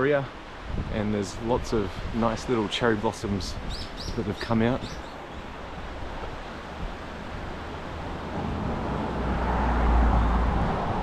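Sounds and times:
vehicle passing by: 0:07.1 - 0:11.0.

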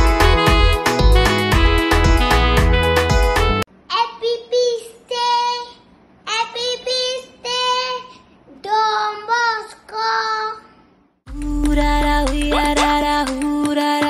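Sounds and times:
boy singing unaccompanied: 0:06.3 - 0:10.7, 0:11.3 - 0:14.0.

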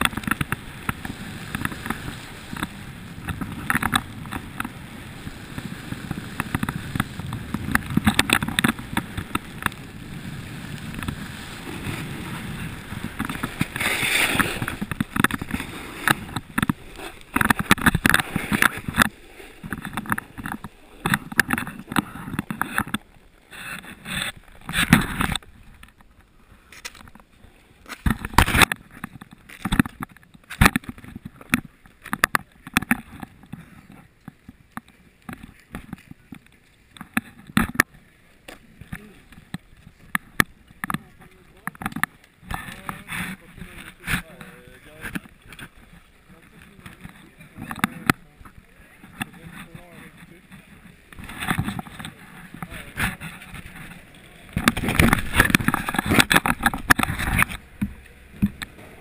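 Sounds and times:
knocks and rustles on microphone: 0:00.0 - 0:04.8, 0:05.5 - 0:09.9, 0:10.7 - 0:26.2, 0:38.5 - 0:58.8
snowboard scraping on snow: 0:00.0 - 0:25.6.

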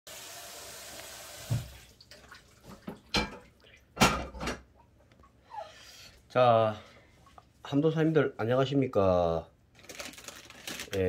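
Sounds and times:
tap running hiss: 0:00.1 - 0:01.9.

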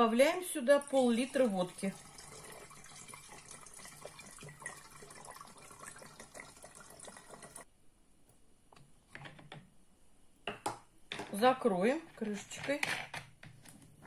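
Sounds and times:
liquid trickling through funnel: 0:00.8 - 0:07.7.

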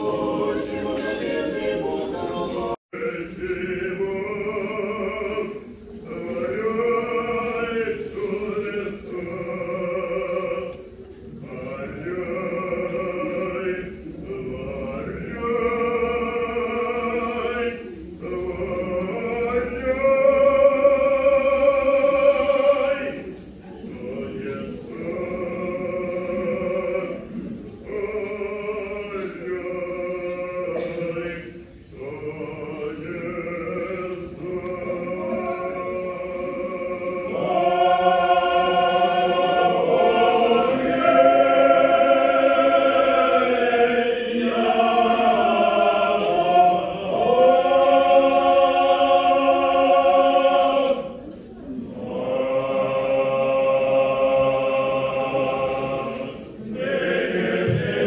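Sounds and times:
choir singing liturgical chant: 0:00.0 - 0:58.0.

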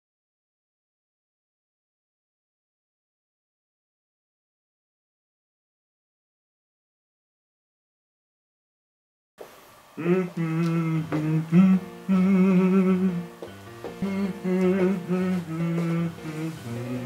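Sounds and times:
person humming a melody: 0:10.0 - 0:17.0.

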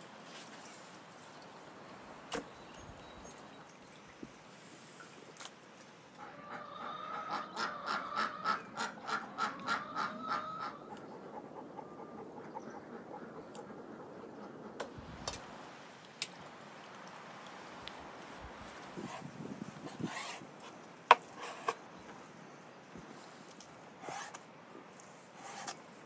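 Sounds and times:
fowl calling: 0:06.2 - 0:13.5.

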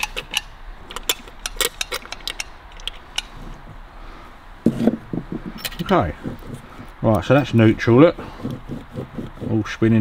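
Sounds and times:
gearbox clicking and ticking: 0:00.0 - 0:03.3.

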